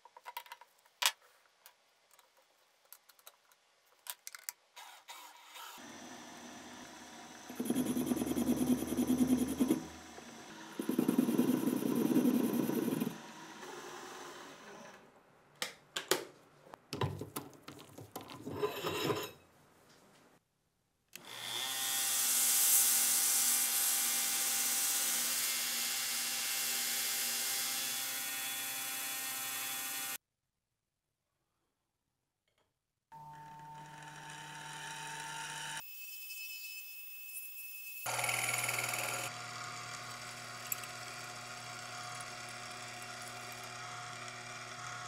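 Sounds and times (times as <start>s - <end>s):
belt sander grinding steel: 5.8s - 13.7s, 38.0s - 45.0s
lathe tool cutting: 5.8s - 13.7s, 38.1s - 45.0s
metal lathe running: 6.8s - 13.2s, 38.1s - 45.0s.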